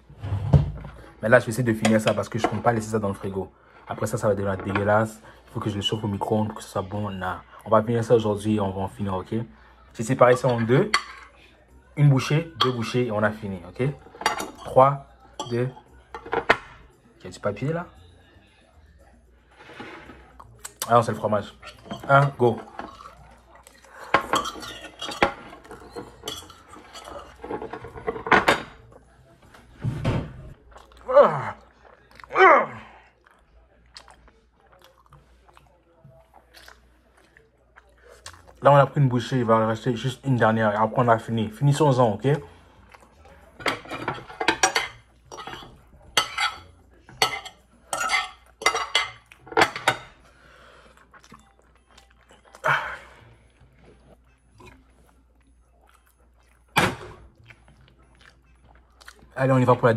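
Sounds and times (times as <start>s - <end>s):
cutlery clinking and scraping dishes: 0.2s - 3.2s, 3.9s - 7.4s, 10.0s - 17.8s, 19.4s - 30.6s, 40.9s - 50.3s
cutlery clatter: 1.8s - 3.0s, 4.1s - 5.1s, 10.1s - 11.4s, 13.8s - 16.9s, 19.6s - 23.2s, 24.0s - 28.9s, 43.6s - 50.2s.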